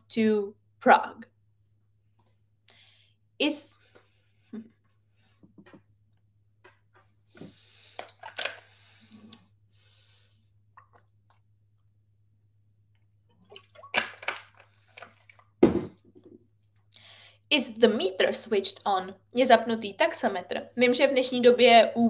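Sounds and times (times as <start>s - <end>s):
person drinking and swallowing: 10.6s - 11.5s.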